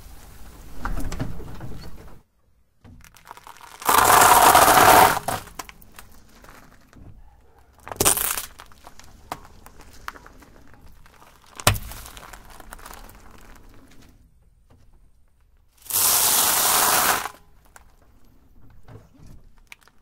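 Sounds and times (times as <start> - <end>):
pasta crunching under car tyre: 3.0 - 6.9, 8.0 - 14.1, 15.8 - 18.0.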